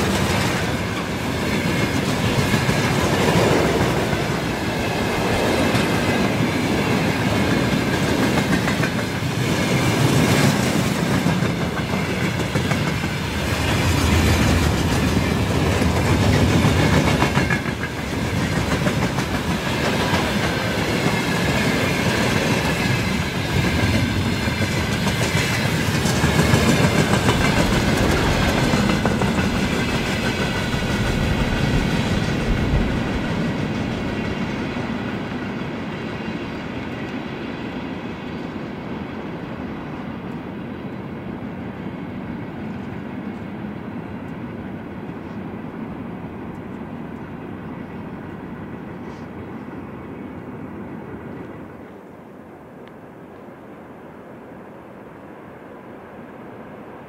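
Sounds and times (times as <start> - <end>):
train wheels clattering on rails: 0.0 - 38.4.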